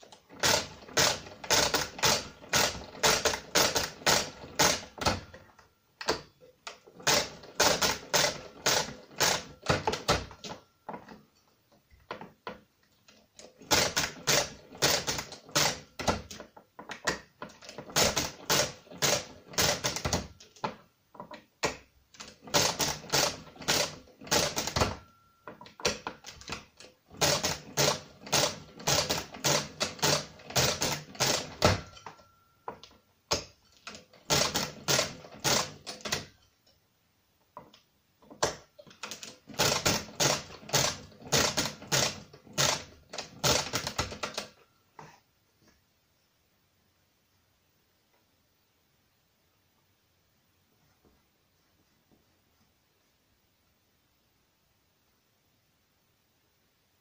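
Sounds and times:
mechanical calculator crank clacking: 0.0s - 5.4s, 7.0s - 10.6s, 13.4s - 16.4s, 17.5s - 20.3s, 22.2s - 25.1s, 25.8s - 32.2s, 33.3s - 36.4s, 38.4s - 44.6s.

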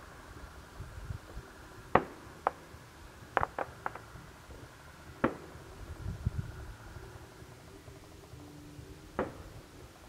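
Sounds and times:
distant firework bangs: 1.9s - 5.7s, 9.2s - 9.6s.

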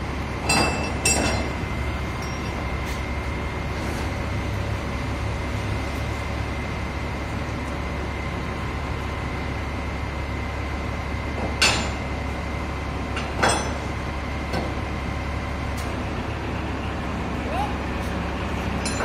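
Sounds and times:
sharp metallic clanks: 0.4s - 1.6s, 18.8s - 19.0s.

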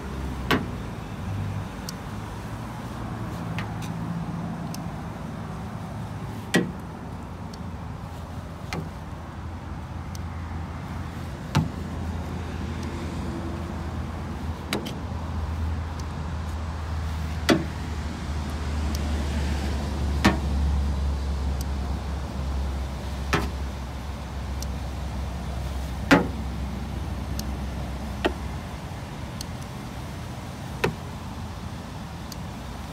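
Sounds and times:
gauge probe clicking on metal: 4.6s - 5.0s, 10.1s - 10.3s, 15.9s - 16.6s, 18.4s - 19.2s, 24.5s - 24.9s, 27.2s - 28.5s, 32.2s - 32.6s.

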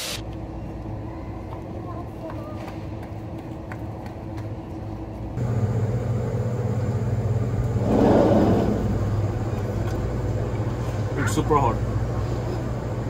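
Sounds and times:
steady low hum: 0.2s - 13.0s
rushing noise: 7.7s - 9.5s.

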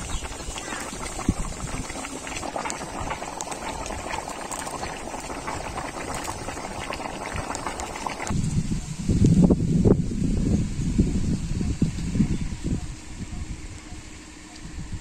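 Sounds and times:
curry bubbling at a simmer: 0.0s - 8.4s.

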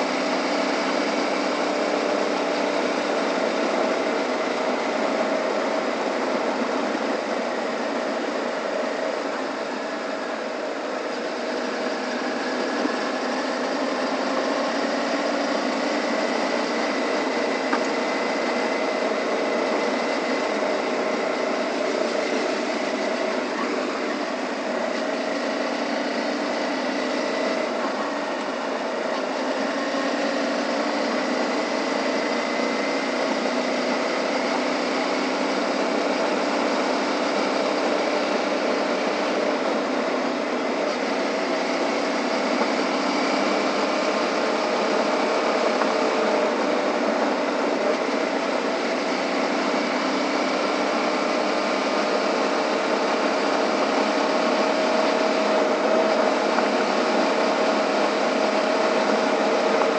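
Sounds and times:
motorcycle engine running: 0.0s - 59.9s
road noise on dirt road: 0.0s - 59.9s.

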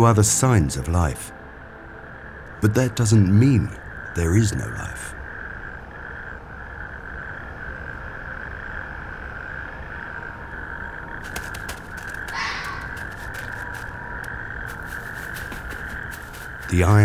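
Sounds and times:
toads calling: 0.9s - 17.0s.

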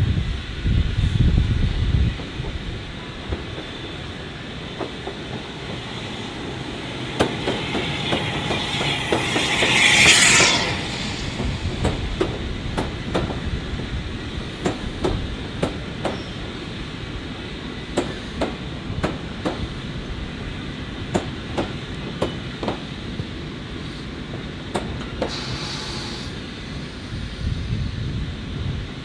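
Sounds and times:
loud steam hiss: 0.0s - 29.0s
train wheels clicking over rail joints: 2.1s - 17.1s, 17.8s - 26.4s.

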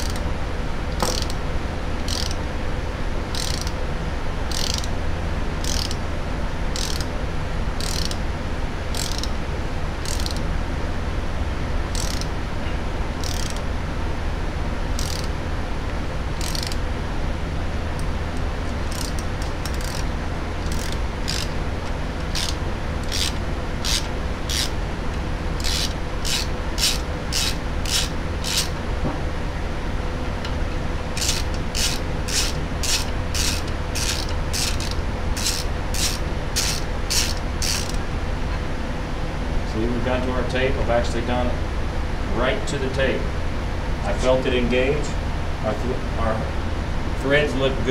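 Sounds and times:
steady low hum: 0.0s - 47.9s
tap rasping through metal: 0.9s - 1.4s, 10.1s - 10.4s, 25.6s - 29.2s, 31.2s - 38.0s.

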